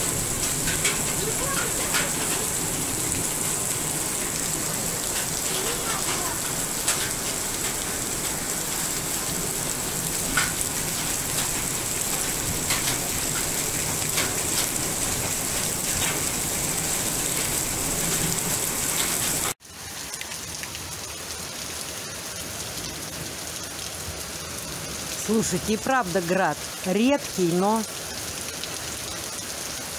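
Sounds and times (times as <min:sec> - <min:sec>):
hailstones tapping: 0:00.0 - 0:19.6
heavy rain and hail: 0:00.0 - 0:29.9.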